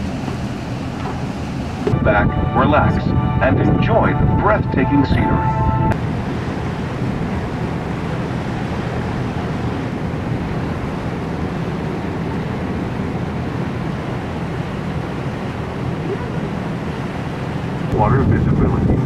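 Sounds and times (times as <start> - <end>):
boat engine hum: 5.5 - 19.0.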